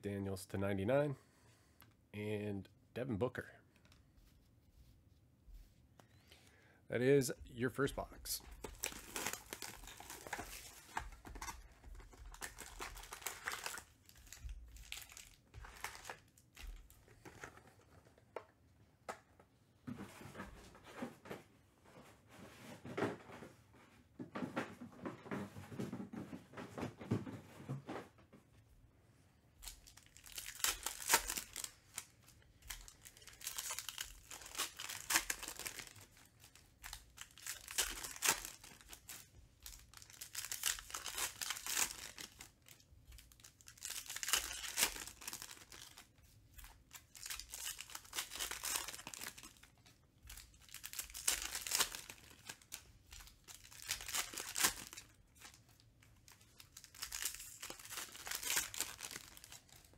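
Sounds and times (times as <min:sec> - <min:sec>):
foil wrappers crinkling: 0:08.5 - 0:17.7, 0:29.6 - 0:59.9.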